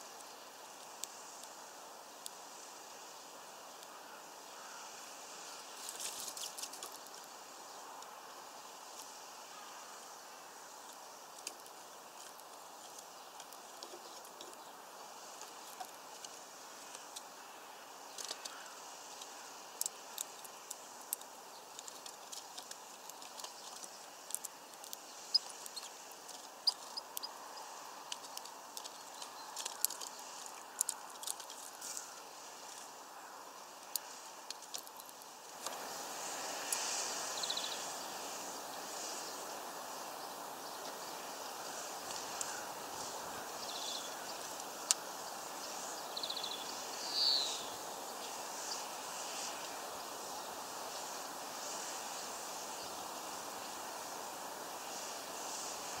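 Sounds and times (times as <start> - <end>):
steady background hiss: 0.0 - 56.0
beaks tapping on seed feeder: 18.1 - 32.1.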